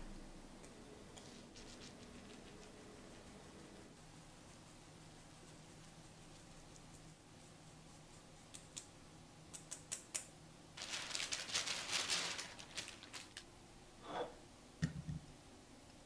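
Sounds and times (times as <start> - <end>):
plastic bag crinkling: 10.8 - 13.5.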